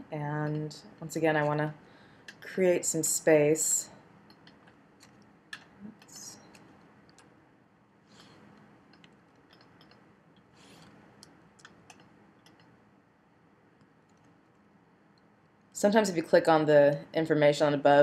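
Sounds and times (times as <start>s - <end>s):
low steady hiss: 0.0s - 18.0s
mouse and keyboard clicks: 8.9s - 10.0s, 10.8s - 12.8s.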